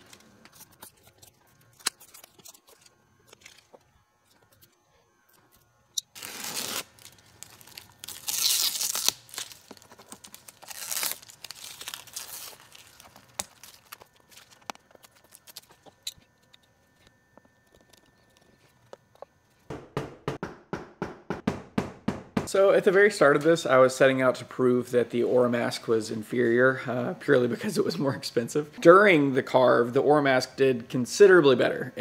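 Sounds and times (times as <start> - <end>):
vinyl film ripping off: 6.0 - 15.8.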